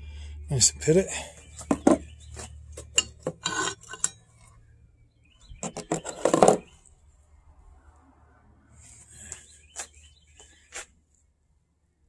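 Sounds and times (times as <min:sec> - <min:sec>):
metal parts clinking and scraping: 0:02.9 - 0:04.3.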